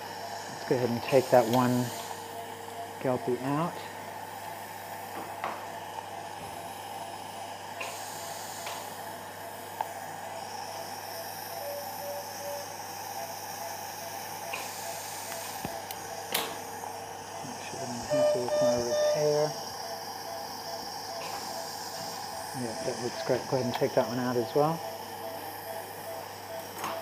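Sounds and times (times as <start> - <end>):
equipment hum and hiss: 0.0 - 27.0
faint short tones: 18.1 - 19.4.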